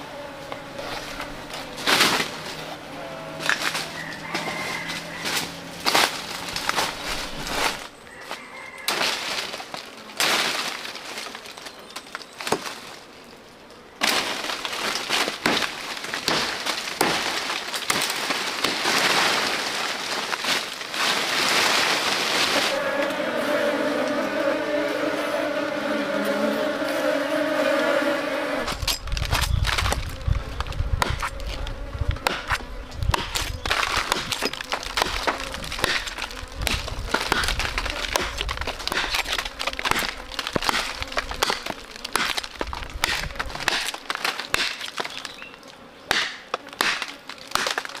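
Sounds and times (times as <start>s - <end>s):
brush rustling: 0.0s - 27.3s, 28.6s - 48.0s
twigs snapping: 3.4s - 13.1s, 14.0s - 23.1s, 28.7s - 48.0s
footsteps crunching through dry leaves: 3.4s - 13.2s, 14.0s - 22.8s.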